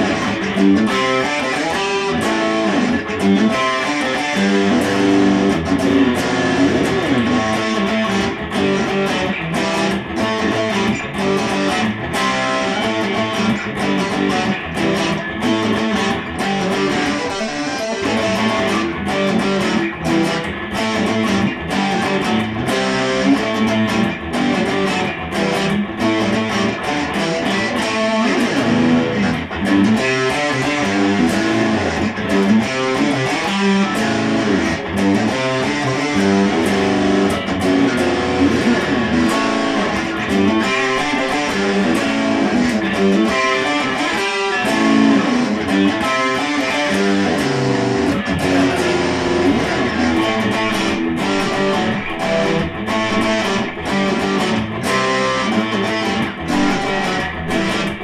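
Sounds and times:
electric guitar: 0.0 - 58.0
acoustic guitar: 56.3 - 58.0.

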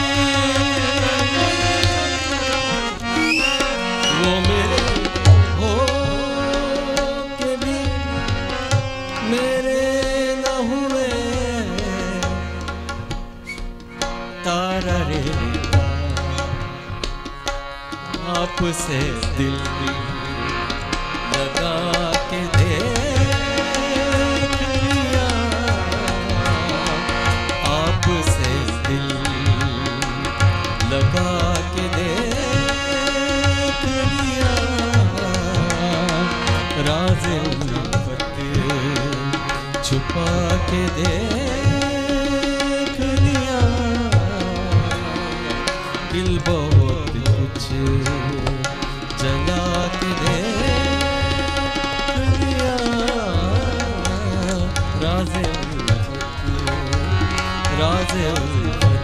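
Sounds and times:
tabla strokes: 0.0 - 10.5, 11.1 - 59.0
harmonium chords and melody: 0.0 - 59.0.

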